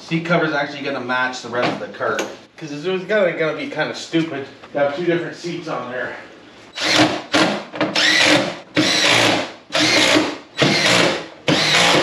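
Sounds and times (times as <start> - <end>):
power drill driving screws: 6.8 - 12.0.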